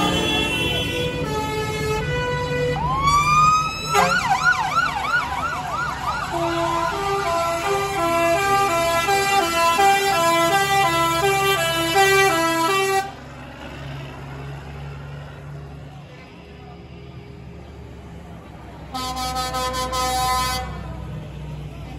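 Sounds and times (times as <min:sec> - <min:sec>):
fire engine siren: 0:00.0 - 0:13.2.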